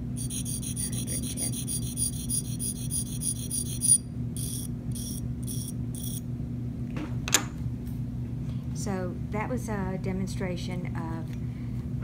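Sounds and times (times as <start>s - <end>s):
low steady hum: 0.0s - 12.0s
blade rasping on sharpening stone: 0.2s - 6.2s.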